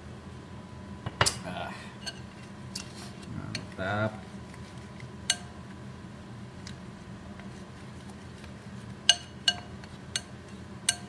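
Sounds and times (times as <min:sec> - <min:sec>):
metal spoon clinking against bowl: 0:09.1 - 0:11.0.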